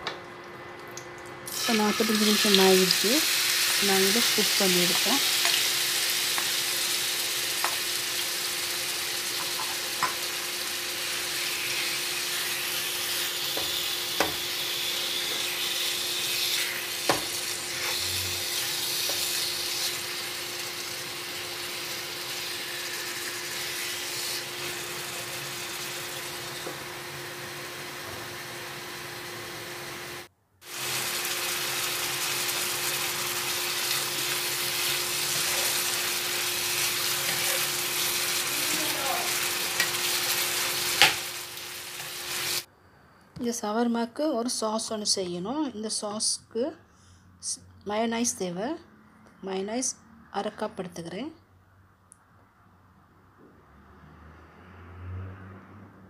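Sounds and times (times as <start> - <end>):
chicken sizzling in a pan: 1.5 - 42.7.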